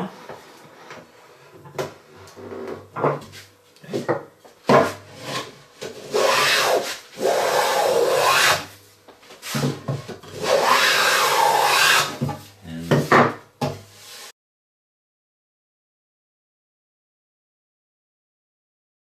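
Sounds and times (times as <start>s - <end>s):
hand plane shaving wood: 5.2s - 8.7s, 10.3s - 12.2s.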